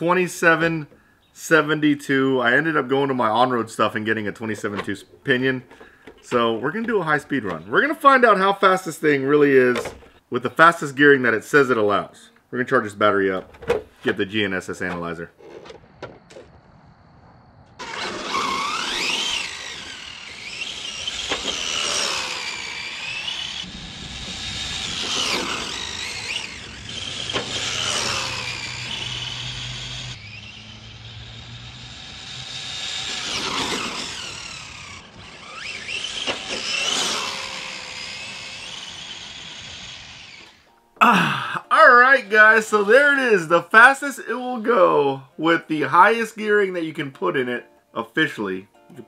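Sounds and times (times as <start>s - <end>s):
rc car motor whining: 17.7s - 40.8s.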